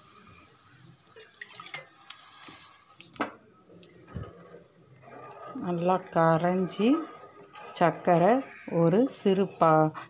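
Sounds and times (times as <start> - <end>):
spatula scraping wet sugar: 4.3 - 10.0.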